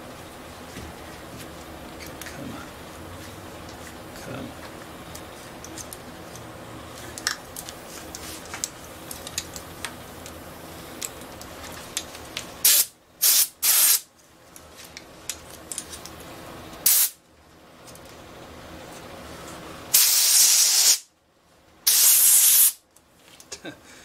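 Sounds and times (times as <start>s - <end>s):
compressed air blasts hissing: 12.6s - 14.1s, 16.8s - 17.2s, 19.9s - 21.1s, 21.9s - 22.8s.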